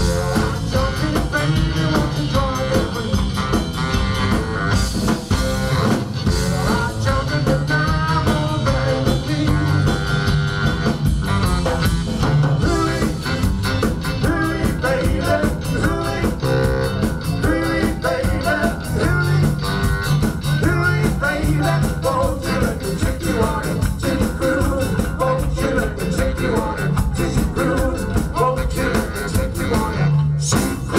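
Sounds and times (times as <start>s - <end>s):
person singing: 0.0s - 3.4s, 6.3s - 10.4s, 12.6s - 13.5s, 14.1s - 19.9s, 20.6s - 30.9s
bass saxophone: 0.0s - 30.9s
drum kit steady beat: 0.0s - 30.9s
electric guitar: 0.0s - 30.9s.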